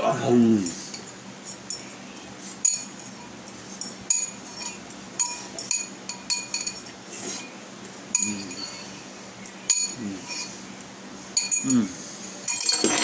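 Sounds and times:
fork clinking on ceramic bowl: 2.6s - 6.9s.

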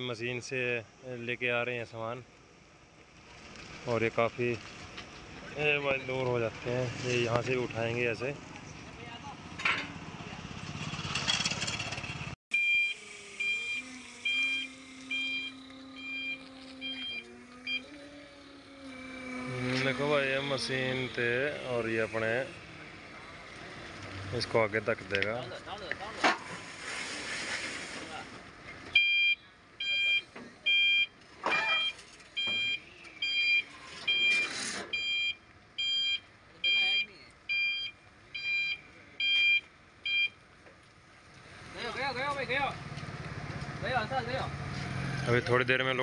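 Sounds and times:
forklift engine running: 11.9s - 25.3s
reversing alarm beeping: 12.5s - 23.5s, 29.0s - 40.4s
short hissing rushes: 26.4s - 28.2s.

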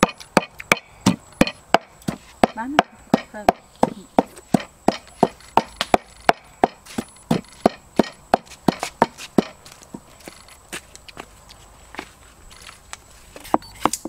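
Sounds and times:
knife chopping on wooden board: 0.0s - 9.6s.

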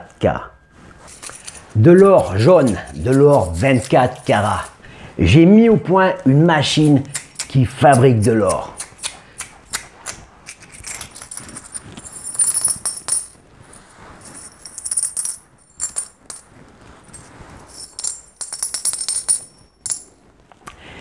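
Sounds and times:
metal coins clinking: 1.0s - 4.8s, 6.7s - 9.8s, 10.4s - 20.1s.

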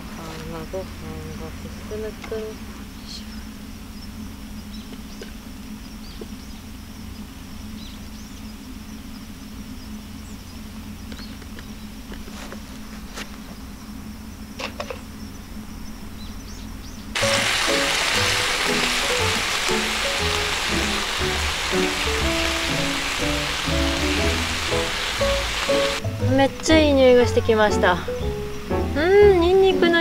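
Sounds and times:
steady low hum: 0.0s - 27.1s
ribs sizzling on griddle: 17.2s - 26.0s.

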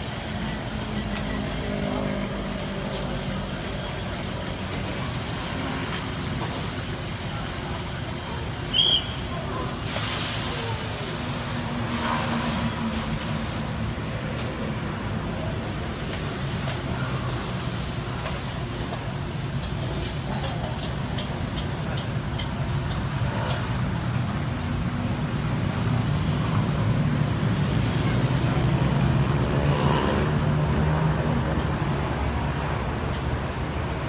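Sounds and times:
gas burner rumbling: 0.0s - 34.0s.

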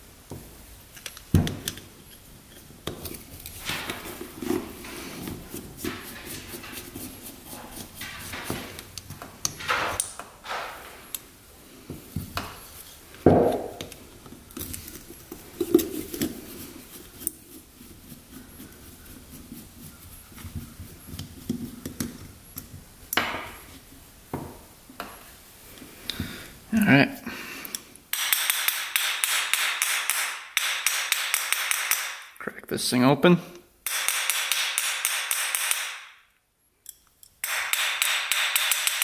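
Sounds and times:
metallic clicks scrapes and knocks: 5.8s - 11.2s.

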